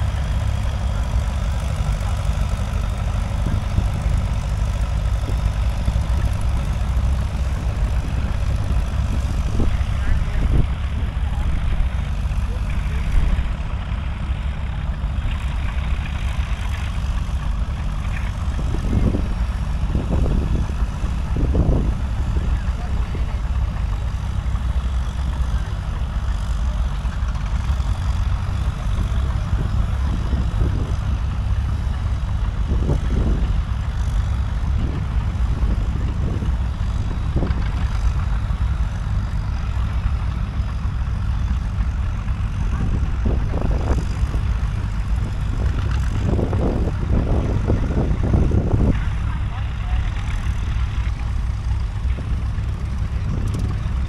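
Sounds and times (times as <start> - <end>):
tractor engine running hard: 0.0 - 54.0.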